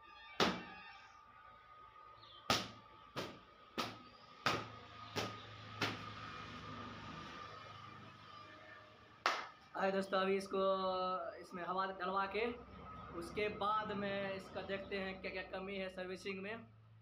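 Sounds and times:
cloth slapping bicycle frame: 2.5s - 6.2s.

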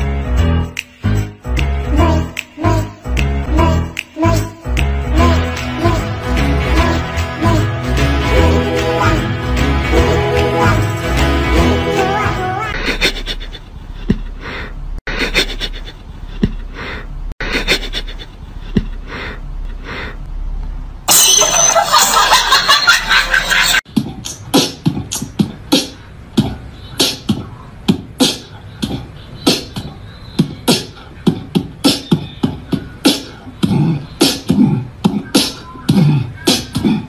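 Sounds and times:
rhythmic percussive beat: 0.0s - 12.6s.

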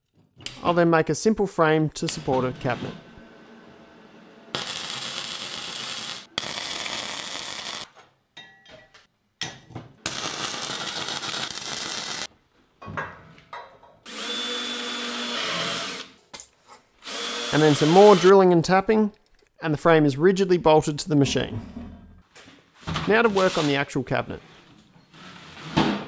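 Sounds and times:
cordless drill whining: 14.1s - 16.1s, 17.0s - 18.2s.

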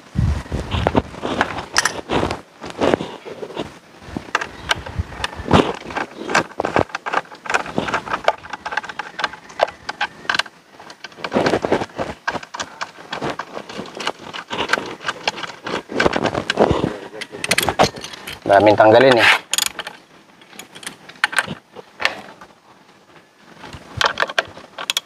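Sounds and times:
hand tools clicking on metal: 4.3s - 21.6s, 24.0s - 25.0s
metal rattling: 4.3s - 22.2s.

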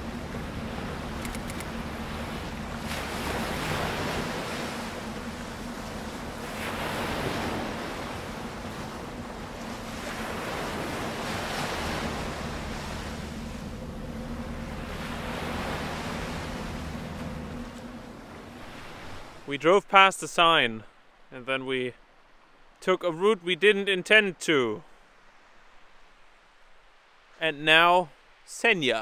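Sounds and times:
waves washing on rocky shore: 0.0s - 20.1s
wind: 0.0s - 29.0s.

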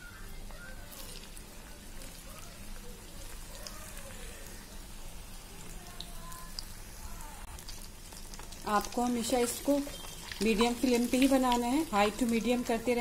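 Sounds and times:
deep-frying sizzle and bubbling: 0.0s - 13.0s
oil popping: 7.4s - 12.7s.

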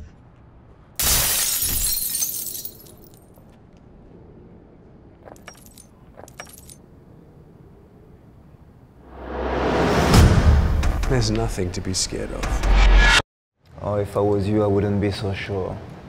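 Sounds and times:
plate glass shattering: 1.0s - 3.2s
glass shards tinkling: 1.0s - 3.4s, 5.3s - 6.8s.

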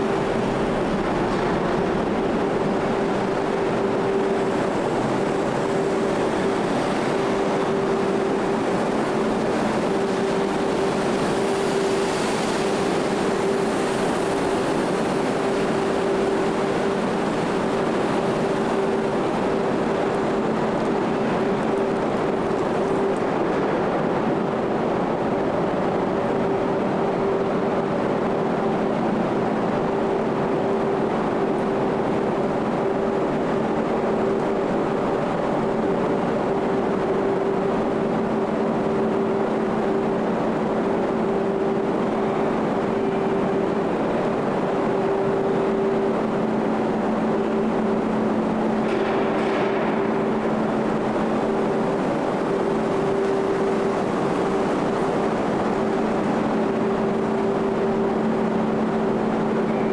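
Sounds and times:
ferry engines droning: 0.0s - 59.9s.

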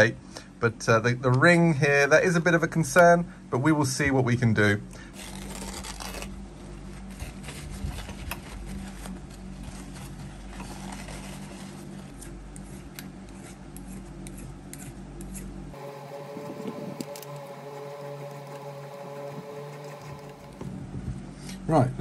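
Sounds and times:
steady low hum: 0.0s - 22.0s
paper towel rustling: 5.2s - 12.2s.

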